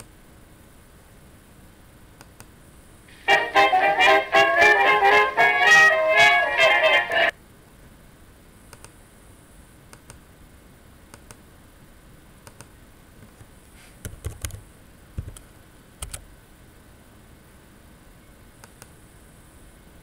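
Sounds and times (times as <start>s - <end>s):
keyboard keystrokes: 16.0s - 16.2s.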